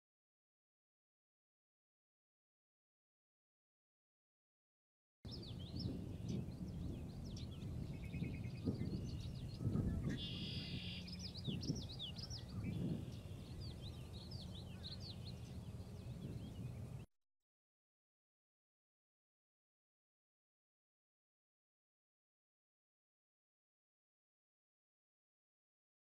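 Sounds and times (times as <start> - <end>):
buzzy bird trill: 5.3 - 17.0
low uneven rumble: 5.3 - 17.1
songbirds singing and chirping: 5.3 - 17.1.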